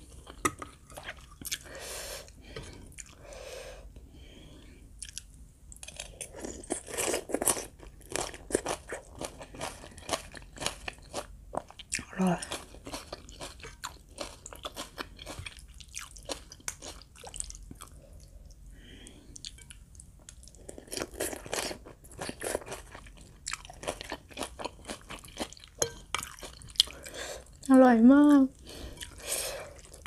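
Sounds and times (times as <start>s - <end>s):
crunchy chewing: 5.0s - 18.0s.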